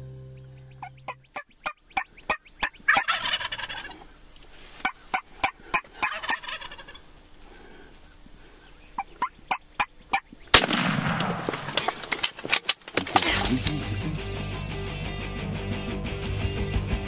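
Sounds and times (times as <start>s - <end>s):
guitar music: 0.0s - 1.3s, 13.3s - 17.0s
turkeys gobbling: 0.6s - 7.1s, 9.0s - 10.4s.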